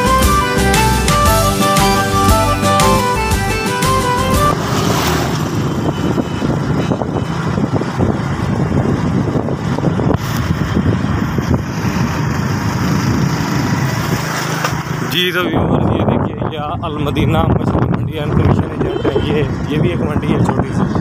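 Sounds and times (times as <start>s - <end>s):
background music: 0.0s - 4.5s
motorcycle engine hum: 0.0s - 16.2s, 16.8s - 21.0s
road and wind noise: 0.0s - 21.0s.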